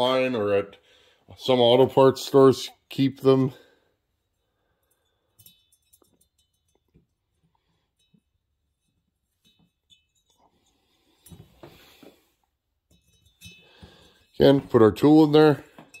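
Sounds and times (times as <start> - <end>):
small metal clicks and clinks: 4.7 - 11.4, 12.9 - 14.4.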